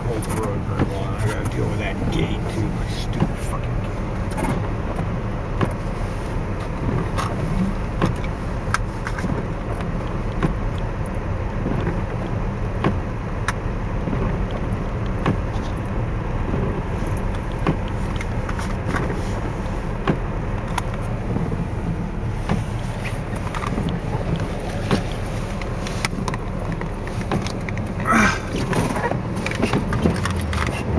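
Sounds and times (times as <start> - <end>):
truck engine and tyres rumbling: 0.0 - 30.9
truck knocks and rattles: 6.6 - 30.9.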